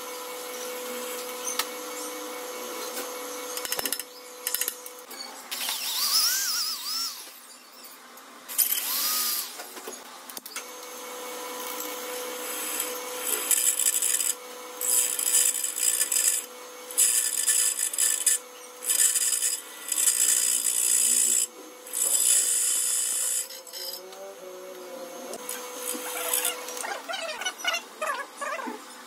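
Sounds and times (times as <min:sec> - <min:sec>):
drill bit grinding metal: 0:05.6 - 0:07.3, 0:08.5 - 0:09.6, 0:11.4 - 0:24.2, 0:24.8 - 0:28.6
drill press motor running: 0:10.7 - 0:24.0, 0:25.1 - 0:27.1.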